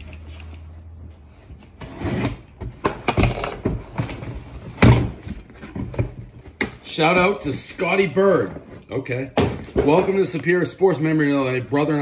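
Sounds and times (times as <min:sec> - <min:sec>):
rummaging in cardboard box: 0:03.1 - 0:10.7.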